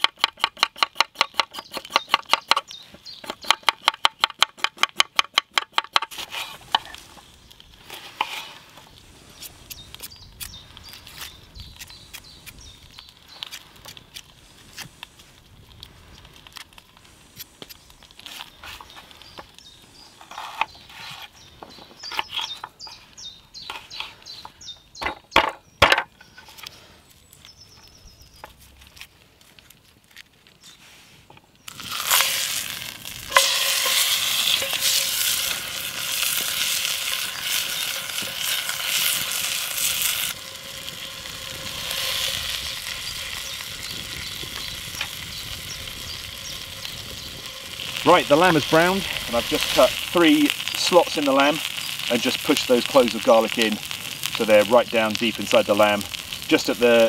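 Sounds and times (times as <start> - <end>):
meat sizzling in hot oil: 31.7 - 57.0.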